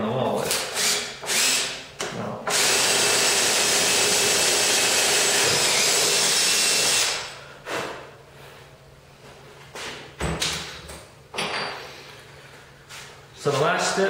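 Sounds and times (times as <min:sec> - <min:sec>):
cordless drill boring: 0:00.6 - 0:01.8, 0:02.5 - 0:07.3.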